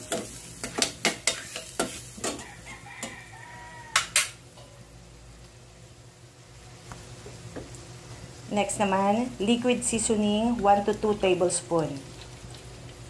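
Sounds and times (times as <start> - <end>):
metal spatula scraping a pan: 0.0 - 3.3
food sizzling: 0.0 - 13.0.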